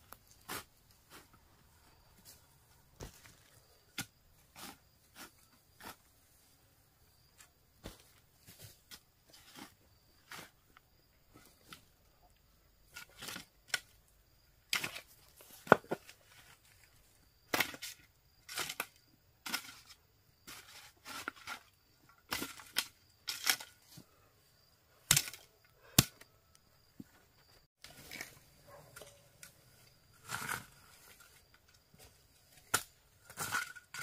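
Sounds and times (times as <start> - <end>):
sharp knocks and cracks: 25.1 - 26.2.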